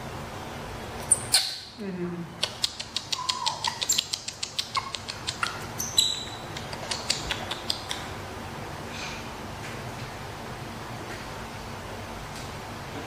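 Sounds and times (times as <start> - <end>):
baby monkey squeak: 1.1 - 1.7, 3.1 - 6.5
quick smacking kisses: 2.4 - 5.7, 6.5 - 8.1.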